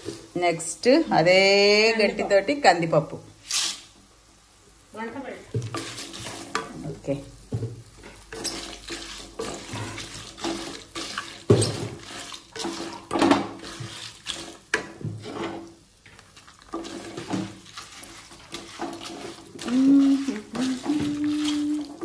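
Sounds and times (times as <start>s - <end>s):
wooden spatula scraping pan: 5.5s - 6.8s, 7.5s - 22.0s
dry lentils rattling in pan: 7.5s - 22.0s.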